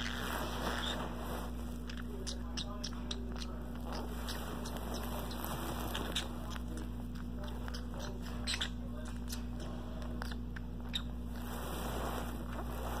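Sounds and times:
bird scuffling on carpet: 0.0 - 10.2, 10.9 - 13.0
steady low hum: 0.0 - 13.0.

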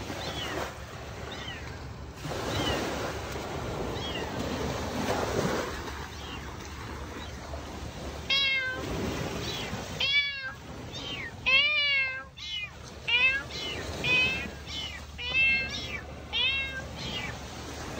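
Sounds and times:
cat meowing: 8.2 - 17.4.

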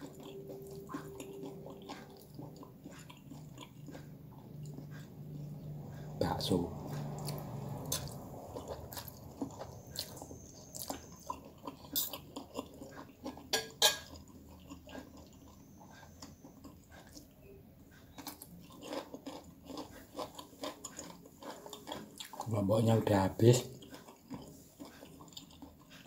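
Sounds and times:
person chewing: 0.0 - 22.6, 23.6 - 26.0
cutlery scraping on a plate: 13.5 - 14.2.

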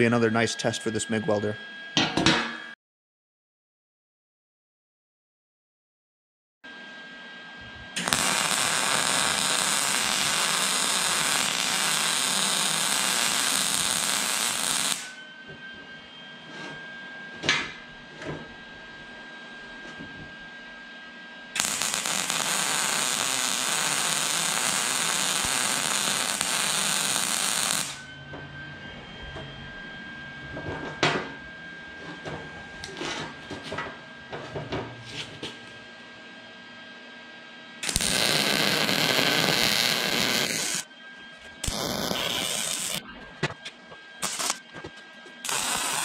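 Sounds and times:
welder arc crackling: 8.0 - 15.2, 21.6 - 28.0, 37.8 - 40.9, 41.6 - 43.0, 44.2 - 44.6, 45.4 - 46.0.

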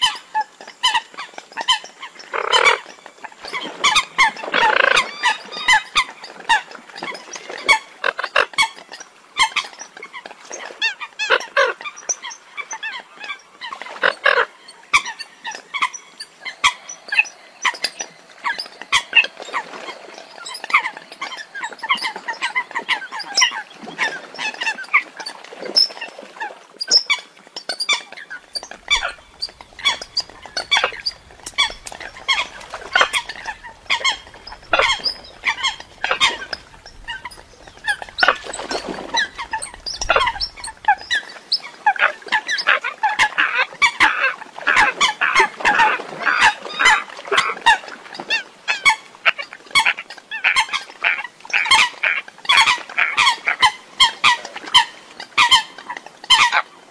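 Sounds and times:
coots calling: 0.8 - 2.9, 28.4 - 42.8, 49.8 - 55.7.

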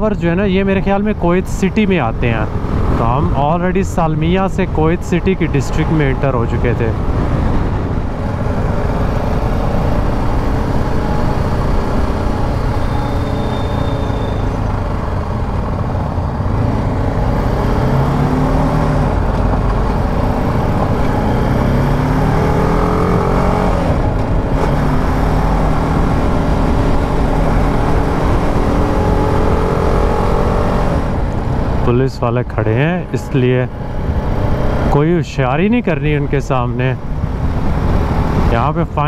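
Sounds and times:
motorcycle engine accelerating: 6.9 - 31.9, 37.0 - 39.0.

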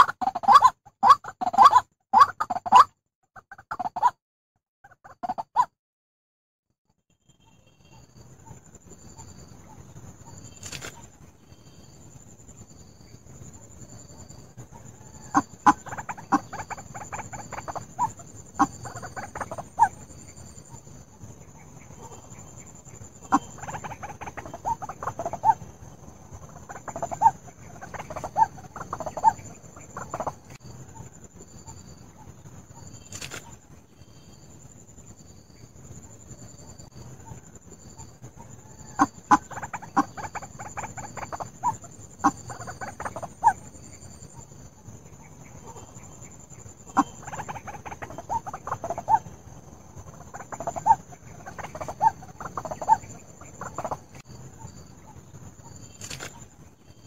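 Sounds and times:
bird clucking calls: 0.0 - 4.2, 4.8 - 5.7, 14.7 - 20.9, 21.5 - 32.3, 38.3 - 43.7, 45.2 - 49.4, 50.0 - 54.8.

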